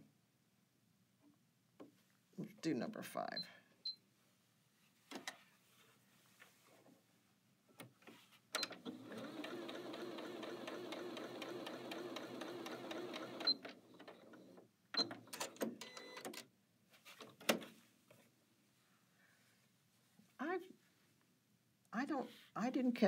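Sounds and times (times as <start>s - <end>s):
sewing machine stitching: 8.6s - 16.4s.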